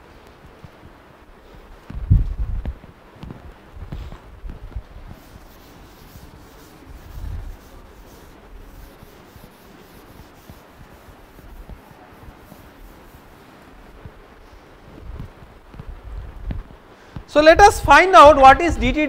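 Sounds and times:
chalk scratching on blackboard: 5.0 - 14.2.

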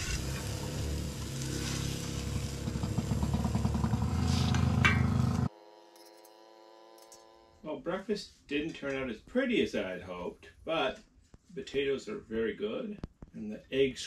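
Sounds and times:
food sizzling on griddle: 0.0 - 4.6.

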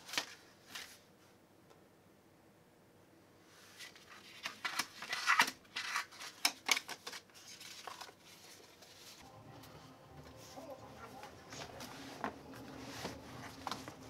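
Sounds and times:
paper rustling and crackling: 0.0 - 1.1, 3.6 - 9.2, 10.2 - 14.0.

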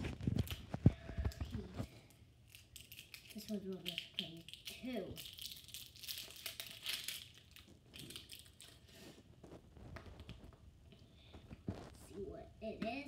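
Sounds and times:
plastic wrapper crinkling and tearing: 0.0 - 1.6, 2.4 - 8.9.

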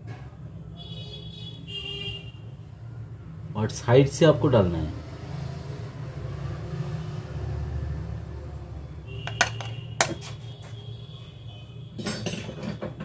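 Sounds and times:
small objects clicking and tapping: 9.3 - 10.4.

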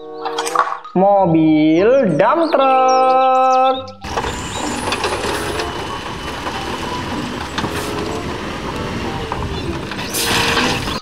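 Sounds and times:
stones tumbling from dump truck: 4.0 - 11.0.

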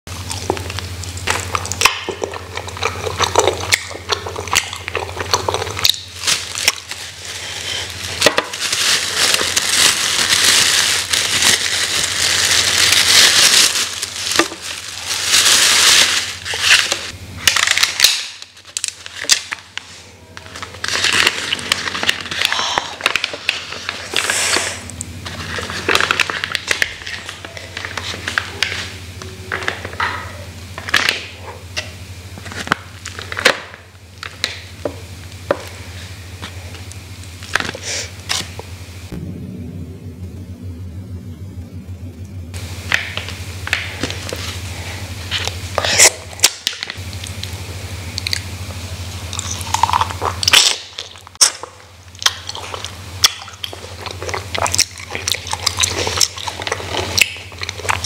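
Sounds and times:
steady low hum: 0.1 - 58.0
plastic bags crinkling: 0.2 - 28.9, 49.2 - 58.0
paper wrapping rustling: 2.7 - 29.0.

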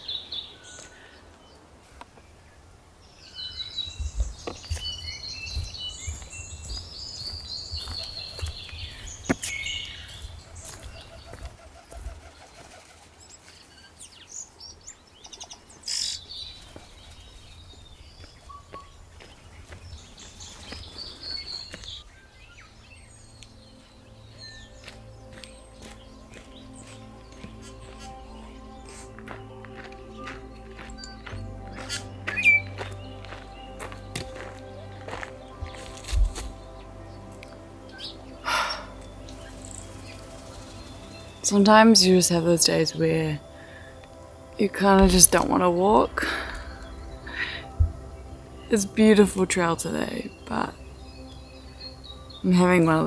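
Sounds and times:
forest birds chirping and trilling: 0.0 - 53.0
low thumps: 45.0 - 48.4.

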